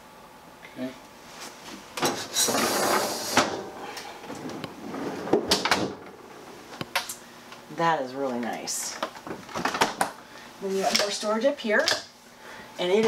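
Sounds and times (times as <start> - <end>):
freezer drawer sliding on rails: 2.0 - 6.2.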